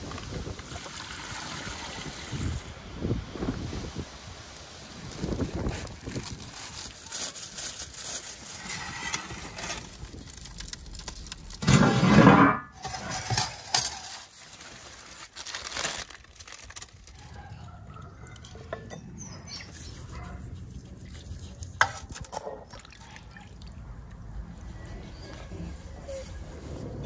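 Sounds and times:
broth sloshing and dripping: 20.7 - 24.9.

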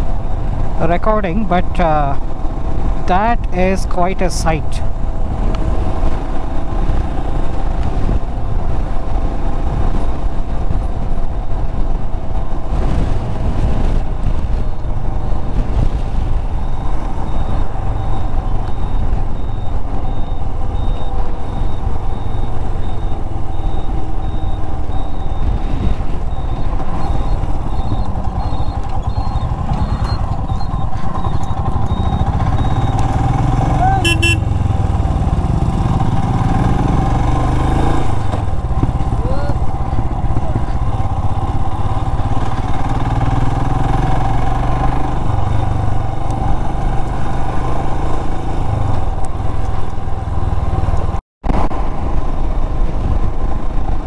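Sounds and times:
road noise: 0.0 - 54.0
motorcycle engine running: 4.8 - 54.0
wind rushing: 4.9 - 19.4, 23.3 - 46.8.

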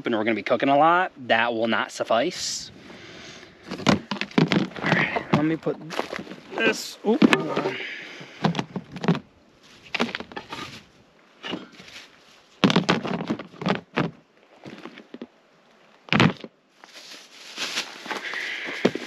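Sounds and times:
camping gear knocks and clatters: 3.6 - 15.3, 16.1 - 19.0
rustling: 3.6 - 15.3, 16.1 - 19.0
heavy thump: 3.7 - 6.3.

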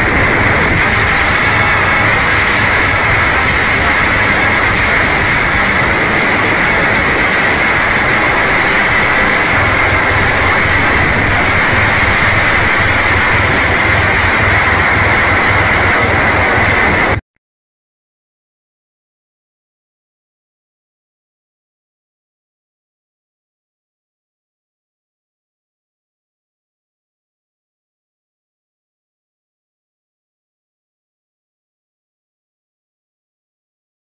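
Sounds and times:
loud static noise: 0.0 - 17.2.

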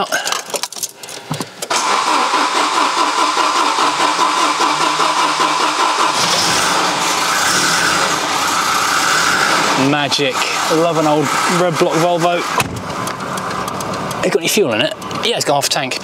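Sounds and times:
engine cranking on starter: 1.7 - 14.2
engine running: 1.7 - 16.0.

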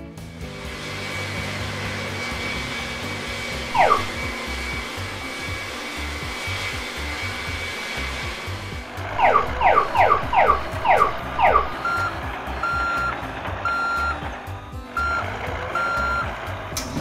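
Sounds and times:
falling whistle-like sweeps: 3.7 - 4.6
whooshing engine sound effect: 3.7 - 4.6, 9.0 - 11.8
truck reversing beeps: 3.7 - 4.8, 9.1 - 16.7.

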